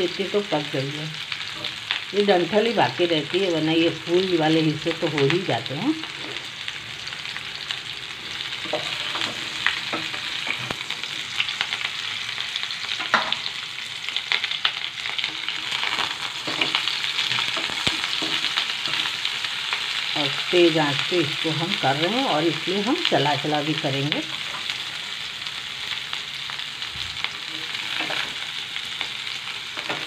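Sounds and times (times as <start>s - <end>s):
vegetables sizzling in oil: 0.0s - 30.0s
spatula scraping pan: 8.4s - 11.4s.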